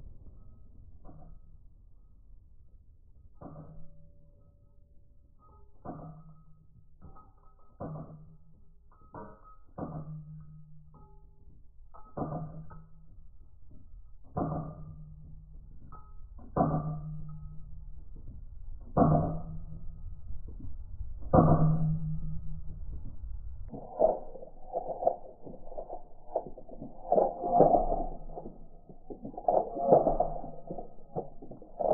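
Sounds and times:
slowed gun shots: 0:23.7 - 0:31.9.

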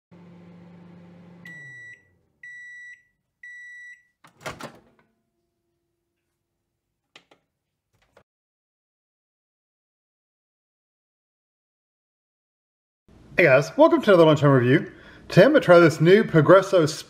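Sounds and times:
microwave humming: 0:00.1 - 0:06.2
microwave door clunking open: 0:04.3 - 0:05.0.

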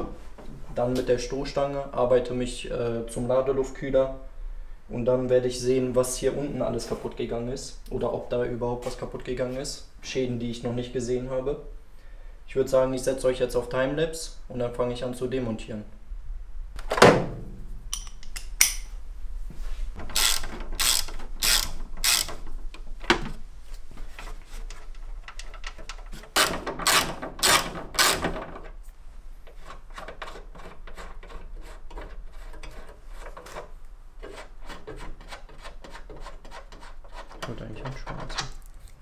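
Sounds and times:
ratchet wrench clicking: 0:20.1 - 0:22.4.

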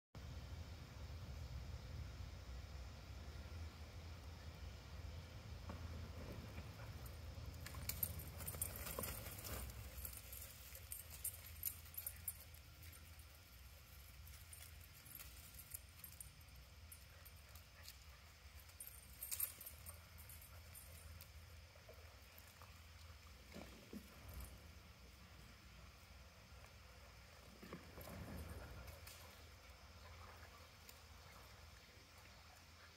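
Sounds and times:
faint low rumble: 0:00.2 - 0:32.9
high jingling clicks: 0:06.8 - 0:21.5.

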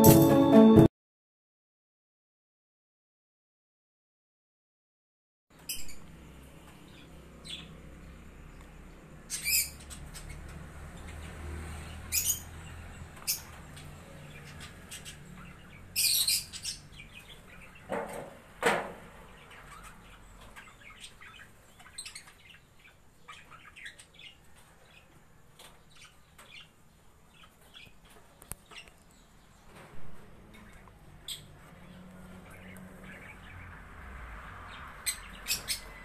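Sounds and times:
lovebirds chirping and squawking: 0:05.6 - 0:06.1, 0:09.2 - 0:11.4, 0:12.0 - 0:17.9, 0:19.2 - 0:29.0, 0:30.6 - 0:33.8, 0:34.8 - 0:36.0.

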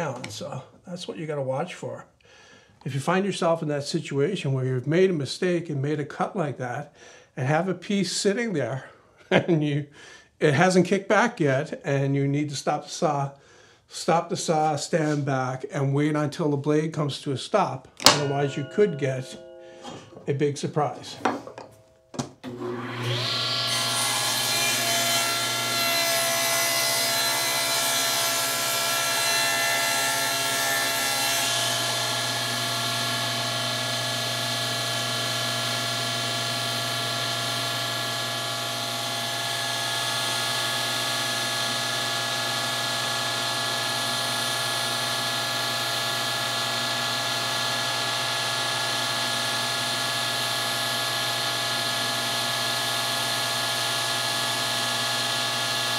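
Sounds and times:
saw blade cutting wood: 0:18.0 - 0:20.3, 0:22.4 - 0:55.9
table saw motor whine: 0:22.4 - 0:55.9.

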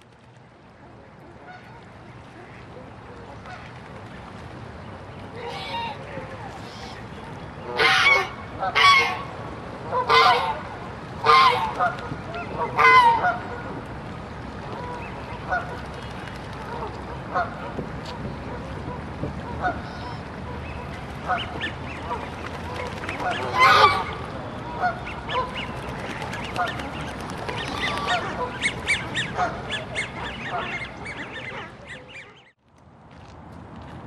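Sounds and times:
geese honking: 0:05.4 - 0:07.0, 0:07.6 - 0:09.3, 0:09.9 - 0:13.7, 0:22.9 - 0:25.8, 0:26.4 - 0:32.5.

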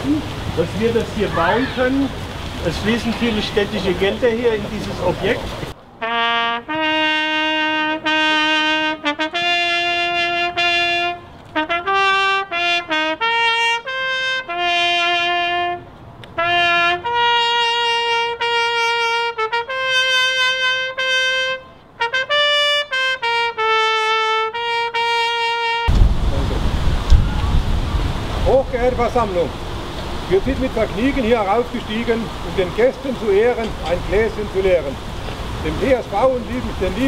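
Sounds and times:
solo trumpet melody: 0:06.0 - 0:26.0.

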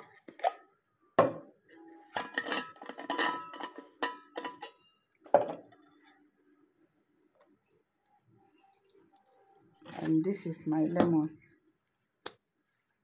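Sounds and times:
flask knocking on wooden table: 0:01.2 - 0:01.4.

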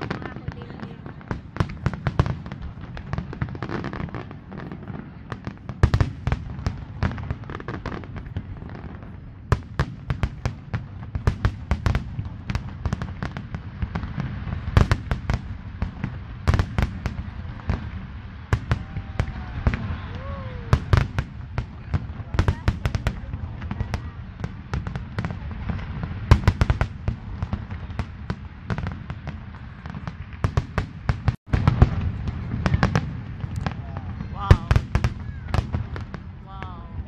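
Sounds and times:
fireworks bangs and crackles: 0:00.0 - 0:37.0
loud firework booms: 0:00.0 - 0:37.0.

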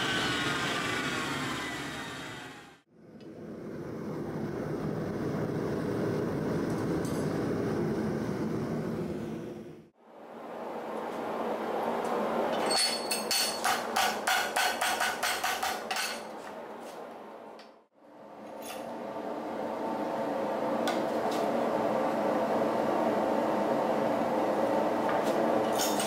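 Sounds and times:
workshop roar: 0:00.0 - 0:02.9.

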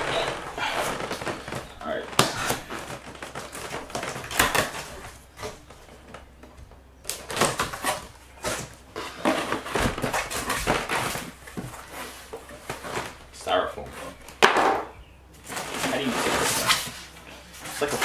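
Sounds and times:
tape tearing: 0:00.0 - 0:05.7, 0:07.1 - 0:13.2, 0:15.4 - 0:18.0
cardboard flaps scraping and rustling: 0:00.0 - 0:06.2, 0:07.1 - 0:14.3, 0:15.4 - 0:18.0.

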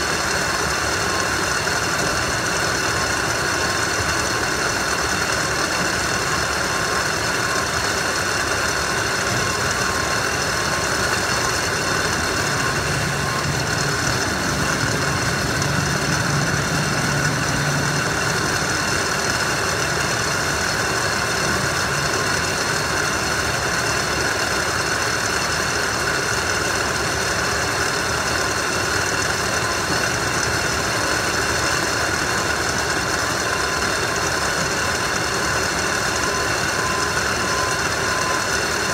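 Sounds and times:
conveyor lines running: 0:00.0 - 0:38.9
high whines: 0:02.0 - 0:25.9
low hum: 0:09.3 - 0:23.0.

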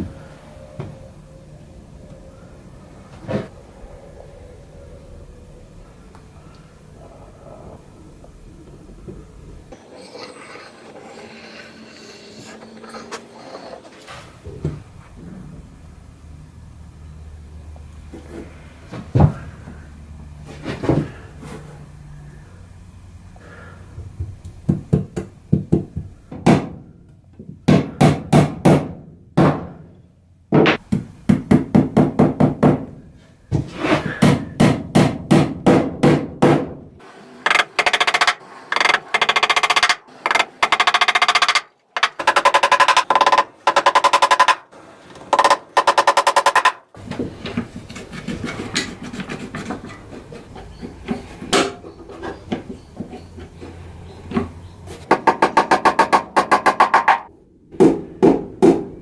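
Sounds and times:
hammer tapping nails into wood: 0:37.5 - 0:44.7, 0:45.3 - 0:46.8.

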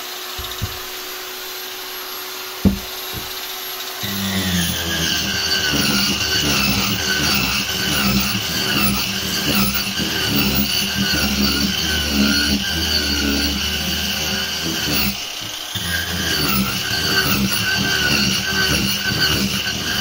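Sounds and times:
angle grinder whining: 0:00.0 - 0:20.0.

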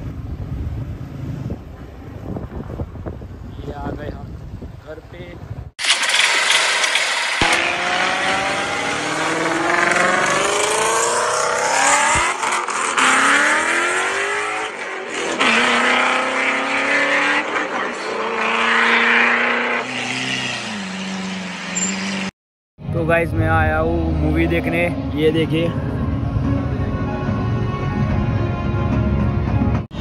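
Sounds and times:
racing engine accelerating: 0:05.8 - 0:22.3.

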